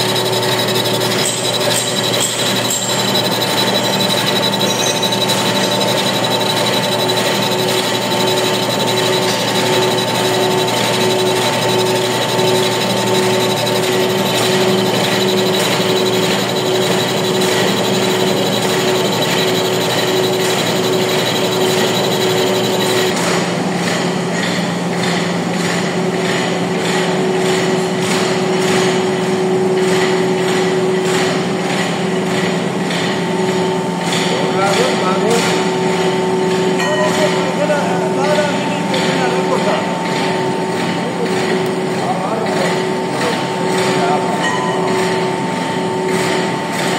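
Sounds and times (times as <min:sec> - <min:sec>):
high whine from lathe drive: 0:00.0 - 0:23.2
lathe machine hum: 0:00.0 - 0:23.7.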